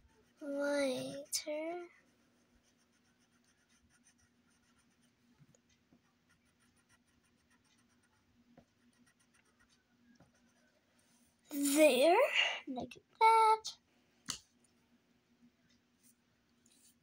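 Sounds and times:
pencil scratching on paper: 0.0 - 5.2, 5.9 - 11.2.

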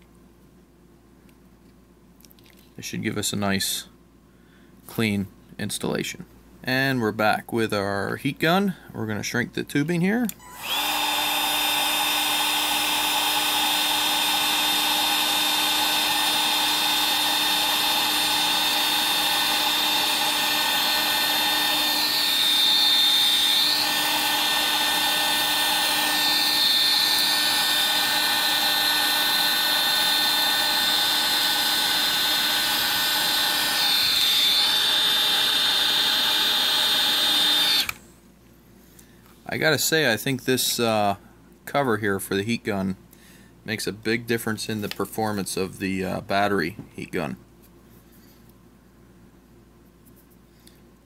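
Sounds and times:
heat gun fan blowing: 10.2 - 38.1.

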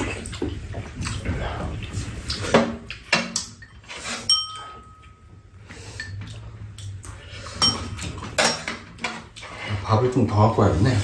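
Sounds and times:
metal spoon clinking on bowls: 3.1 - 5.4, 6.0 - 6.4, 7.5 - 9.2.

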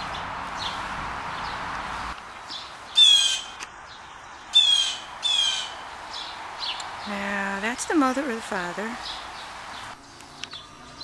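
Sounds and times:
rushing noise: 0.0 - 11.0
blue jay squawking calls: 2.9 - 3.6, 4.5 - 5.8.

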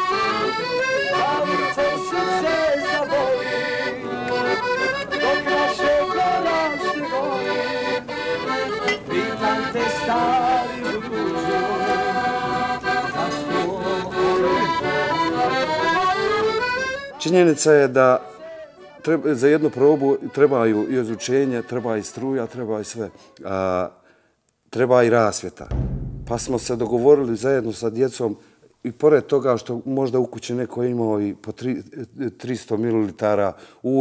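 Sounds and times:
accordion playing a tune: 0.0 - 23.4.

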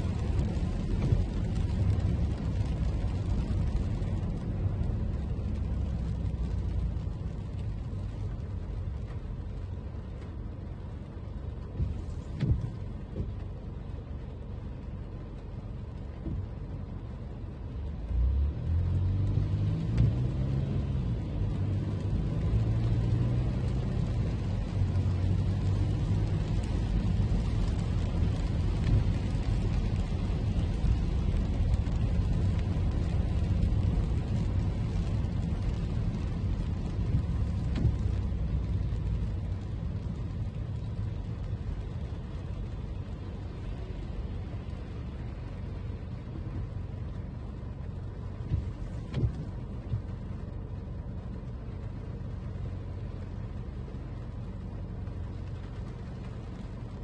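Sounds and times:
tyre rumble on wet road: 0.0 - 57.0.

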